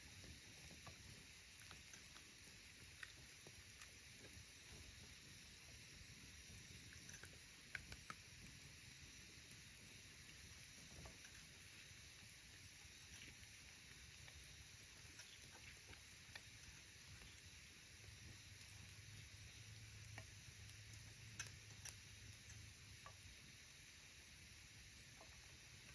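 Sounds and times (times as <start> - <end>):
faint steady hiss: 0.0 - 25.9
small sharp clicks: 6.7 - 8.5.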